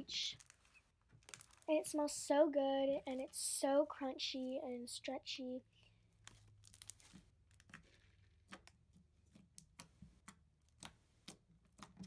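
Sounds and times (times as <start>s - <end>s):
foam slime crunchy crackles: 0.0s - 2.4s, 6.3s - 8.1s.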